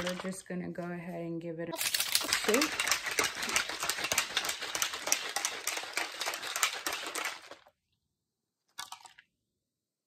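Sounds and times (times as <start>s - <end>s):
shaker bottle rattling: 0.0s - 0.5s, 1.8s - 7.8s.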